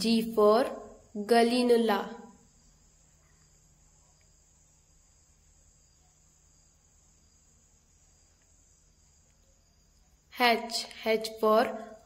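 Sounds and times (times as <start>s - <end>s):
faint high-pitched hiss: 0.0s - 12.0s.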